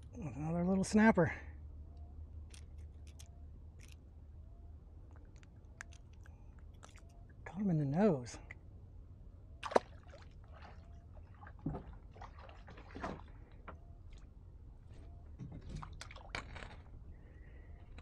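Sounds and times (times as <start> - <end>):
small clicks and knocks: 2.5 - 4.0
sharp water slap: 9.6 - 10.3
water lapping against kayak hull: 9.6 - 14.3.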